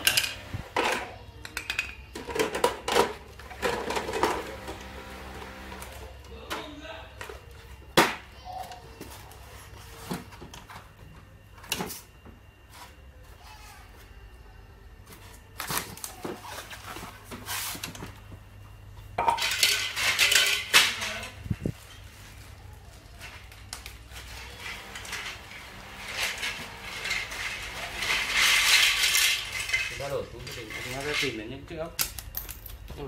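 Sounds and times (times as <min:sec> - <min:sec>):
metal planter parts clinking: 0:19.2 - 0:21.4, 0:24.5 - 0:31.4.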